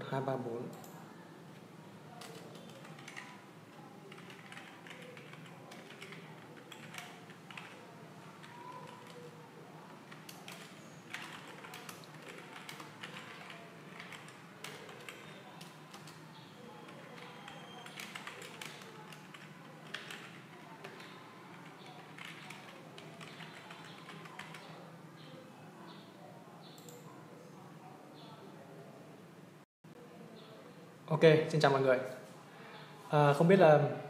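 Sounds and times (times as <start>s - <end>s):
computer keyboard typing: 2.2s - 24.8s.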